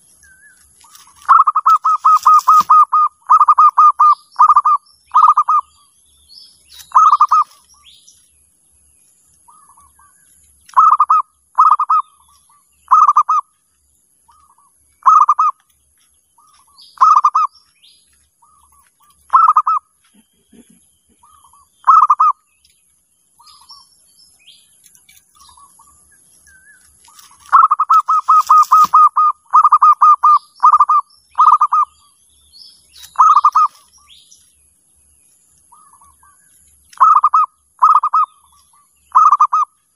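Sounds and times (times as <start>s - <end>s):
small birds chirping: 0.0s - 39.9s
dove cooing: 1.2s - 5.8s, 6.8s - 7.6s, 10.7s - 12.2s, 12.9s - 13.5s, 15.0s - 15.6s, 17.0s - 17.5s, 19.3s - 22.4s, 27.2s - 32.0s, 33.0s - 33.8s, 37.0s - 38.4s, 39.1s - 39.7s.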